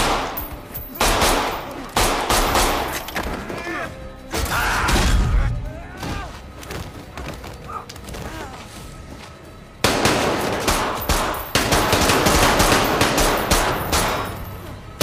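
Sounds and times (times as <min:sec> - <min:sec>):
rapid gunshots: 0:01.0 - 0:02.9, 0:09.8 - 0:14.3.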